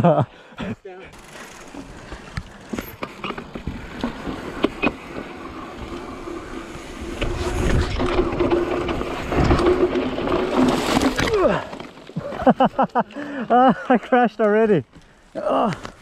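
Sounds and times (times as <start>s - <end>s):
bike tyres on dirt trail: 0.1s - 16.0s
bike chain and frame rattling: 1.0s - 13.0s
wind rumbling on microphone: 5.5s - 10.6s.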